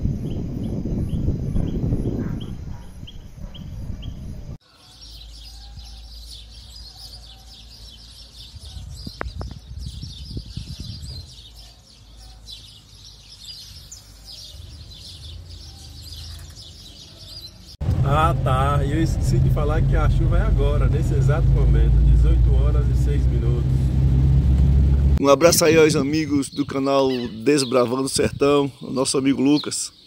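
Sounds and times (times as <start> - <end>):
birds chirping and calling: 0.0 - 17.8, 18.6 - 24.4, 25.2 - 30.0
loud low rumble: 17.8 - 25.6.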